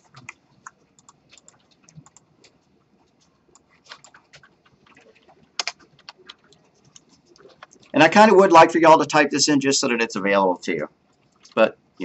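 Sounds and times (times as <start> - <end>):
keyboard keys clicking: 0.0 - 2.6, 3.5 - 8.0.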